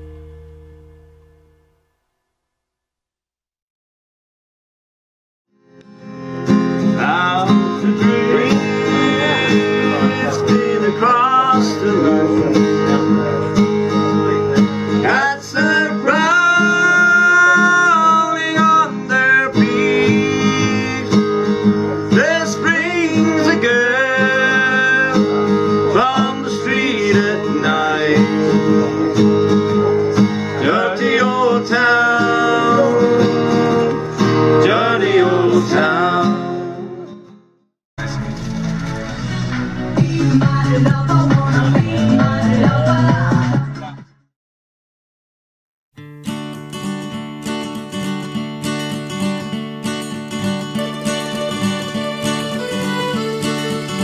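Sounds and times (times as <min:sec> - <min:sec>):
guitar: 0:00.0 - 0:02.3, 0:05.5 - 0:44.3, 0:46.0 - 0:54.0
button accordion melody: 0:05.8 - 0:15.4, 0:50.6 - 0:54.0.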